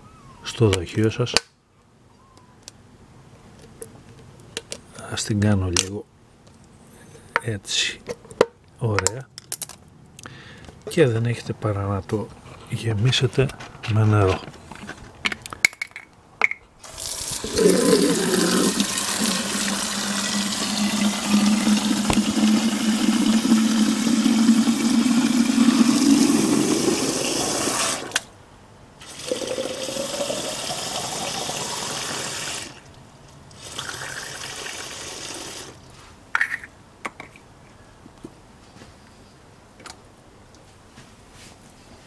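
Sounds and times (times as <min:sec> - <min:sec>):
water filling plastic bottle: 0:16.8 - 0:28.2, 0:29.0 - 0:35.8.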